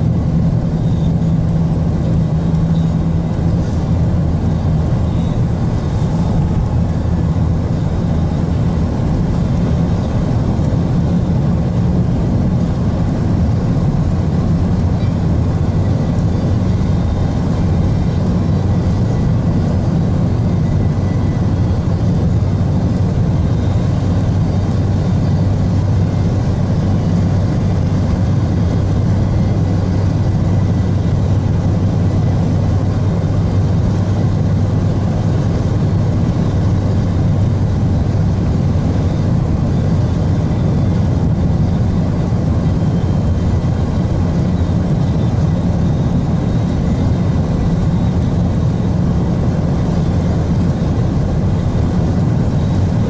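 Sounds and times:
car interior engine and tyre drone: 0:00.0 - 0:53.0.

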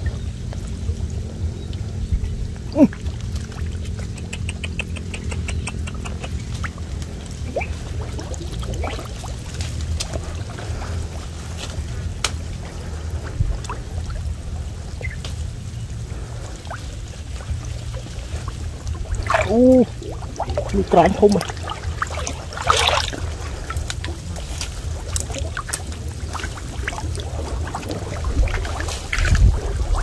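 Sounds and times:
water sloshing and splashing: 0:00.0 - 0:30.0
high ticks: 0:04.0 - 0:07.2
fish thrashing at surface: 0:18.6 - 0:30.0.

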